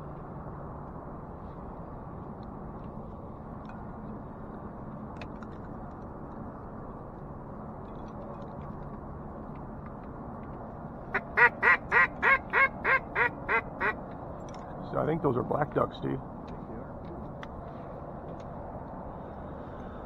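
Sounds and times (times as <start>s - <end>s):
duck call quacks: 11.1s - 14.0s.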